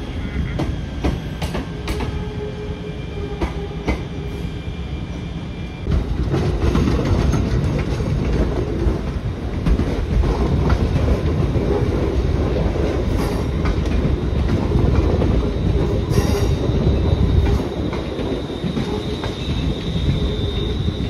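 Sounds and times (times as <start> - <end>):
train wheels rumbling over rail joints: 0.0 - 2.5, 5.8 - 21.0.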